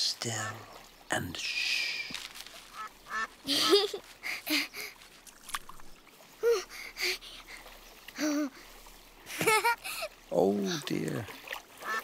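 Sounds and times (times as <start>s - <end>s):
faint trickle of water: 0.0s - 12.0s
ducks quacking softly: 2.7s - 3.8s, 11.7s - 12.0s.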